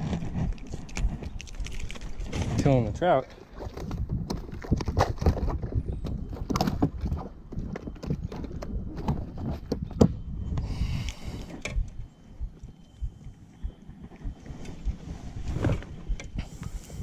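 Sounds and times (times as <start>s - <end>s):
knocks and thumps in inflatable boat: 2.2s - 10.3s, 11.6s - 16.6s.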